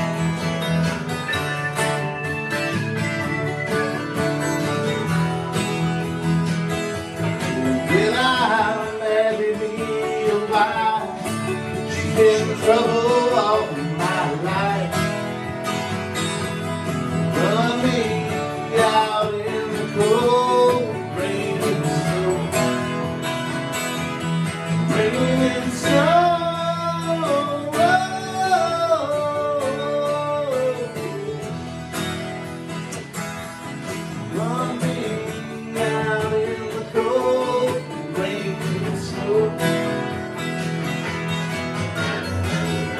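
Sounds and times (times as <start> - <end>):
acoustic guitar strummed: 0.0 - 42.9
man singing: 7.3 - 15.6, 17.2 - 23.2, 24.7 - 31.6, 33.9 - 40.3.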